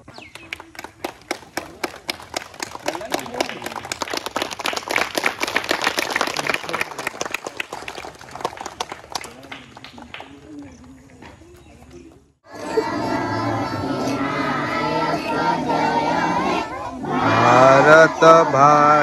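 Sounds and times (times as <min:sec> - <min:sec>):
crowd clapping: 0:00.0 - 0:11.1, 0:12.8 - 0:19.0
voices calling out: 0:09.3 - 0:19.0.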